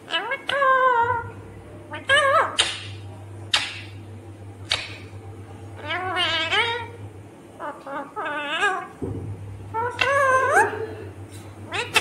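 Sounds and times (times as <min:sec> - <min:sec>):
parakeet screeching: 0:00.1 - 0:01.3, 0:01.9 - 0:02.9, 0:05.8 - 0:07.0, 0:07.6 - 0:09.0, 0:11.7 - 0:12.0.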